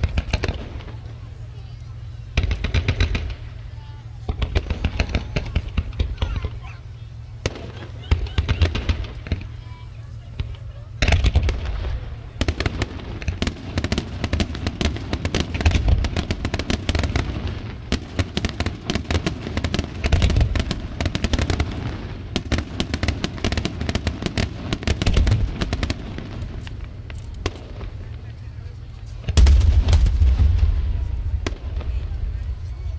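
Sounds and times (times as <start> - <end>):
fireworks bursting: 0.0 - 32.9.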